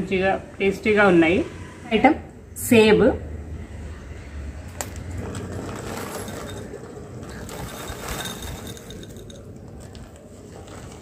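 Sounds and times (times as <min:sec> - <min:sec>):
plastic bag rustling: 0:05.0 - 0:11.0
dry snacks rattling into glass bowl: 0:05.2 - 0:10.0.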